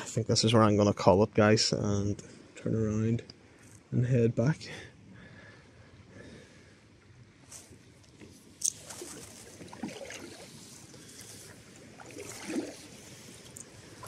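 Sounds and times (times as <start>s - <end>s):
paddle splashing in water: 8.6s - 14.0s.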